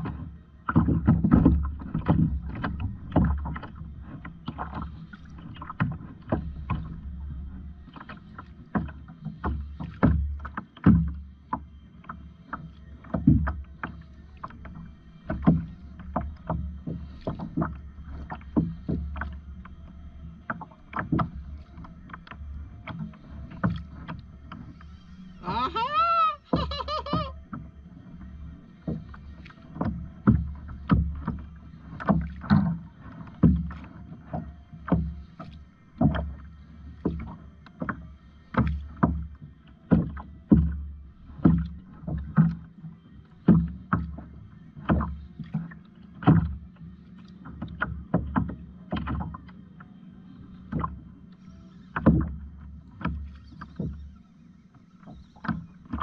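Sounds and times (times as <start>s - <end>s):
kayak paddle splashing: 0.0s - 54.2s
steady low hum: 0.0s - 56.0s.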